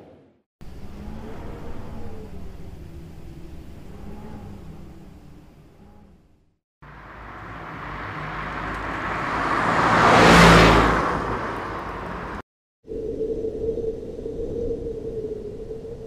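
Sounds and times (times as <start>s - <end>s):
car passing by: 6.8s - 12.4s.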